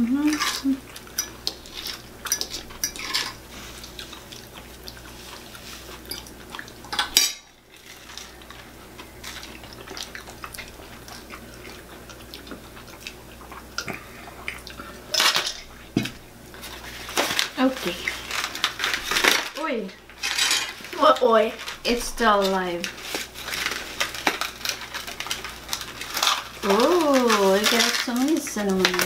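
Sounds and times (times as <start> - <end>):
tableware clattering: 20.2 - 20.8.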